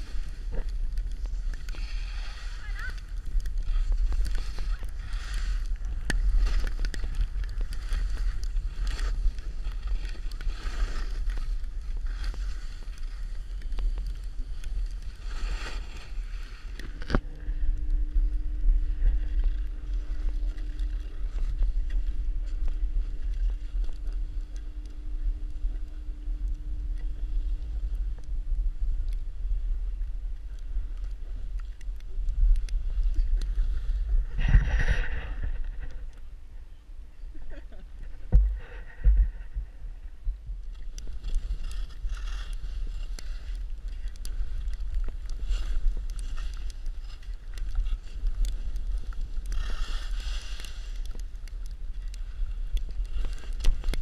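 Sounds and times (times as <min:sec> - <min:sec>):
skis hissing over snow: 0:00.0 - 0:16.7, 0:49.0 - 0:51.0
faint steady hum: 0:00.0 - 0:54.0
wind buffeting microphone: 0:16.8 - 0:41.9.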